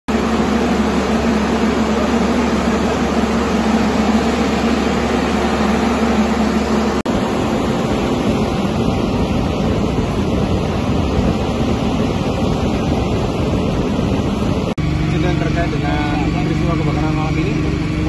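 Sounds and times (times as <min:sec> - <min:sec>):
water jet rushing hiss: 0:00.1 - 0:14.5
truck engine hum: 0:00.1 - 0:18.0.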